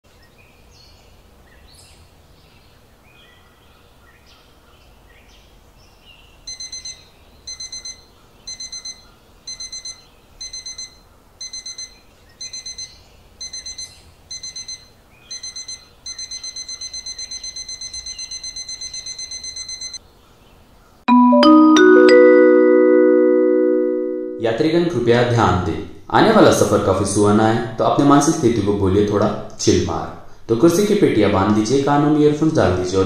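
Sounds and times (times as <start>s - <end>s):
faint bird chirps: 0.1s - 19.4s
electronic alarm beeping: 6.5s - 20.0s.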